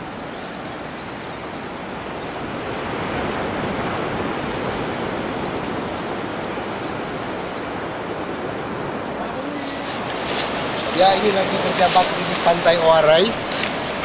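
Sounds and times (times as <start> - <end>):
ocean surf breaking on beach: 0.0 - 14.0.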